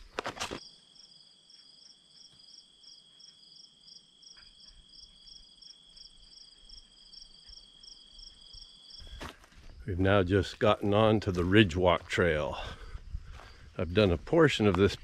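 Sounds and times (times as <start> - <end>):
footsteps on trail: 4.4 - 15.0.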